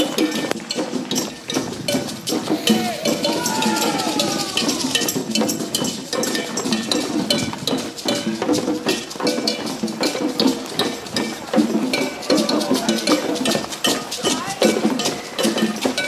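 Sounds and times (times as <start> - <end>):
cowbells clanking: 0.0 - 16.0
voices calling out: 0.7 - 6.3, 10.6 - 16.0.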